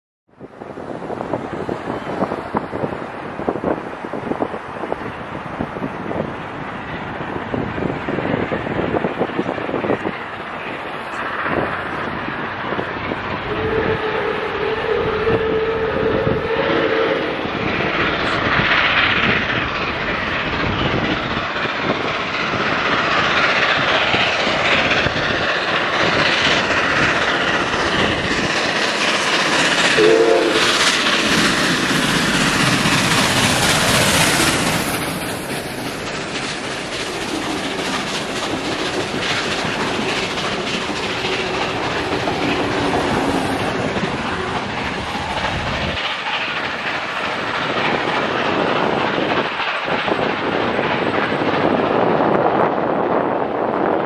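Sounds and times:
clattering rail noise: 0.3 - 54.0
steam train passing: 0.3 - 54.0
train whistle: 13.4 - 17.4, 29.9 - 30.8.

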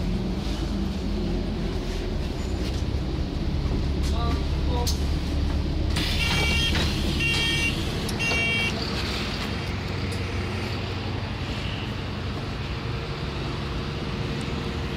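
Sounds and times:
bus diesel engine idling: 0.0 - 14.9
door warning beeps: 6.0 - 8.7.

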